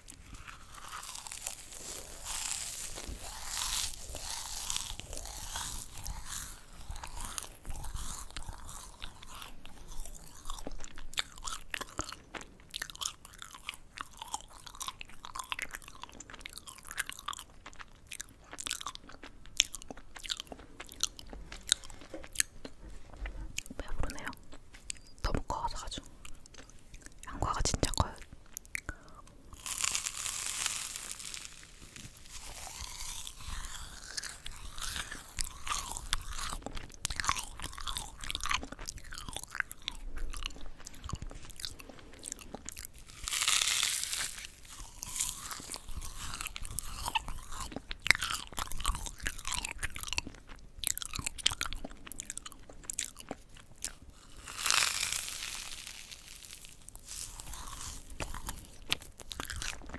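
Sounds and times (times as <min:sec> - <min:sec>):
crisp bites: 0:00.0 - 0:22.8, 0:26.3 - 0:59.9
crackly chewing: 0:00.0 - 0:59.9.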